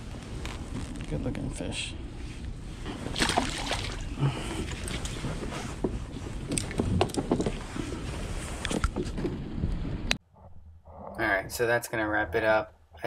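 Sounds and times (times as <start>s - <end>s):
steady low rumble: 0.0s - 7.0s.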